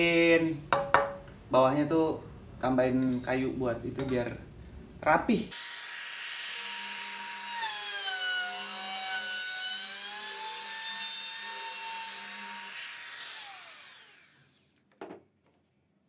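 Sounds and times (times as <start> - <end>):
trim router whining: 5.5 - 14.7.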